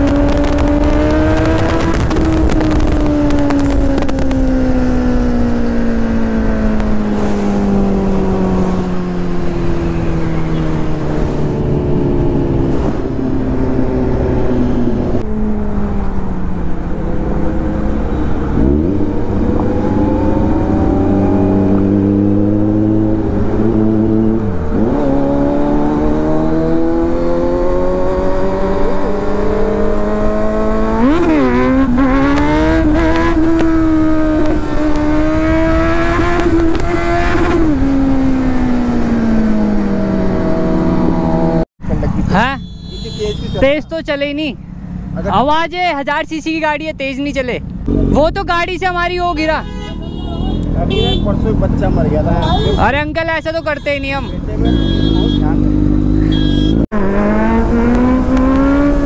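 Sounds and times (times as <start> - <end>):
wind noise: 0.0 - 15.4
motorcycle engine revving: 0.0 - 43.6, 47.7 - 59.0.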